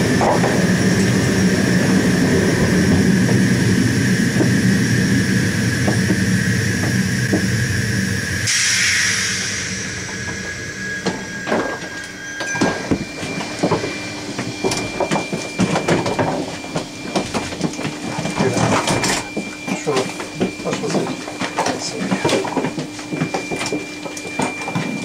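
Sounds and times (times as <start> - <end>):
electric train humming: 0.0 - 25.0
compressed air hiss: 8.5 - 10.1.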